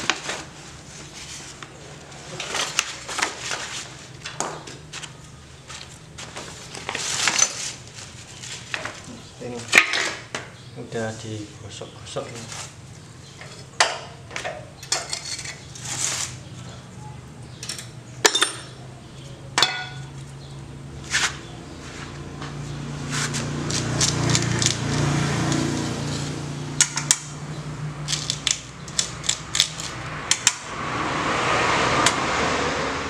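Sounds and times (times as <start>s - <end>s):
metal tools clinking: 6.8s - 7.8s, 14.5s - 16.2s, 17.5s - 18.8s.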